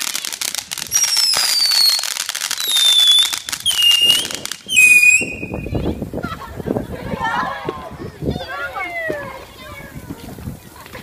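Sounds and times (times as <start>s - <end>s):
firework whistles gliding down: 0.0s - 5.8s
fireworks crackling: 0.0s - 11.0s.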